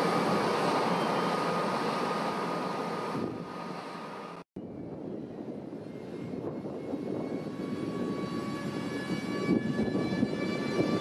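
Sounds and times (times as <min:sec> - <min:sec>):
electric locomotive whine: 0:00.0 - 0:11.0.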